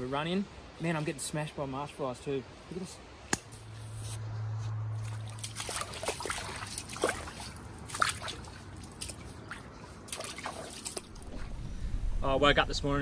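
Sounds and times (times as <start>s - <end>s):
water trickling and dripping: 4.8s - 11.6s.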